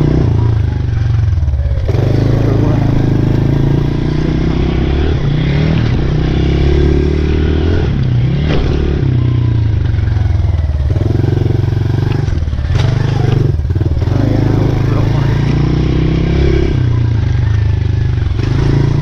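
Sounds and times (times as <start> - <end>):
small motorbike engine revving: 0.0 - 19.0.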